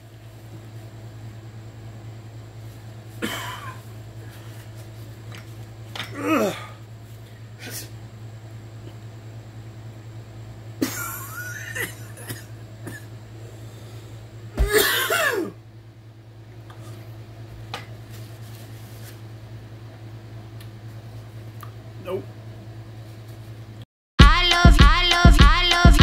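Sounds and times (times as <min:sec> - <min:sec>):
man coughing: 0:03.2 - 0:03.8, 0:10.8 - 0:13.1, 0:14.6 - 0:15.6
man gagging: 0:06.1 - 0:06.8.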